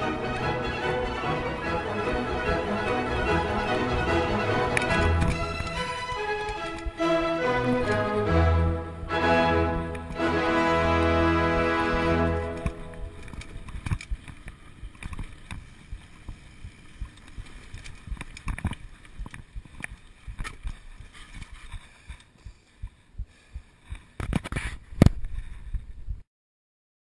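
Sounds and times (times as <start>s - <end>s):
bike rattling on dirt trail: 13.0s - 22.6s.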